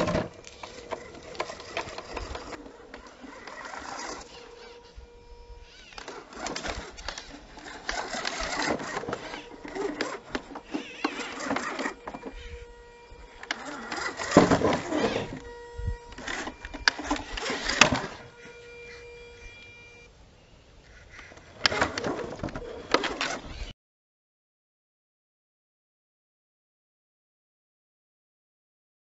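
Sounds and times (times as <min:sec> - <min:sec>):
tyres grinding on stone: 0:00.0 - 0:05.0, 0:05.6 - 0:15.5, 0:16.1 - 0:19.0
electric motor whirring: 0:00.0 - 0:20.1, 0:21.2 - 0:23.7.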